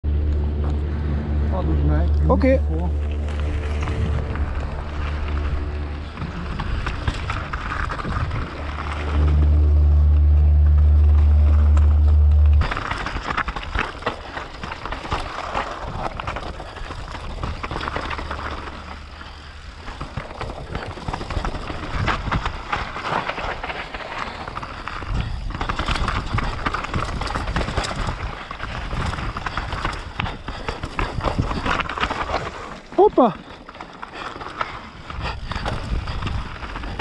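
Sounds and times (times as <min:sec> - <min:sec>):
loud low rumble: 0:00.0 - 0:13.8
faint steady hum: 0:00.1 - 0:13.3
bike tyres clattering over rocks: 0:02.9 - 0:09.2, 0:11.6 - 0:37.0.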